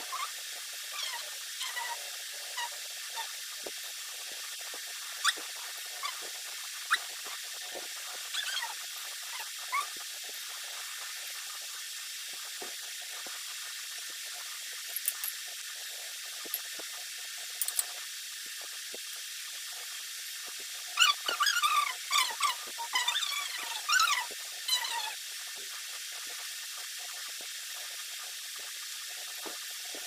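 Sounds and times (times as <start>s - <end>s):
steady hiss: 0.0s - 30.0s
high squeaks and chirps: 21.0s - 25.2s.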